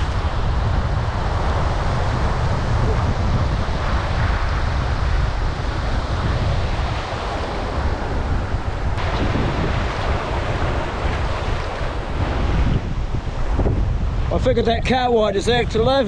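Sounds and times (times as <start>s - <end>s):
small waves washing: 0.0s - 12.6s
wind buffeting microphone: 0.0s - 16.0s.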